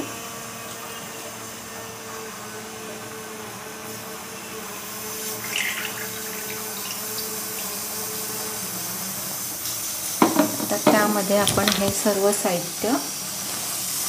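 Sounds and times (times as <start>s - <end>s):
oil pouring into a pan: 5.0s - 8.4s.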